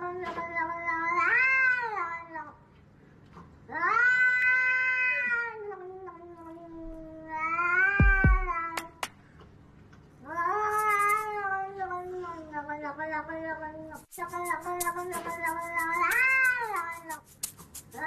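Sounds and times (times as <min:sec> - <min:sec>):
cat yowling: 0:03.7 - 0:08.8.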